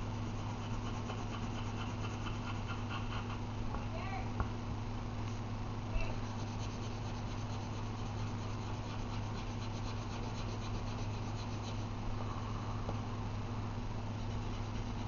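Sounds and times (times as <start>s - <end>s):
steady low hum: 0.0s - 15.0s
pencil shading on paper: 0.2s - 3.4s, 6.2s - 11.9s, 14.2s - 15.0s.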